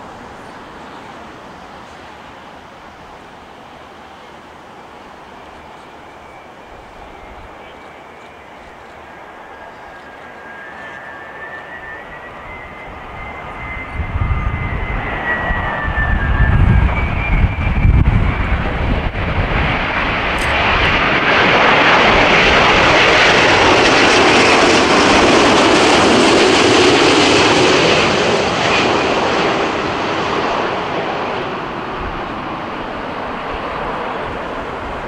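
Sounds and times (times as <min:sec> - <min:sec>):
jet airliner passing overhead: 0:00.0 - 0:35.0.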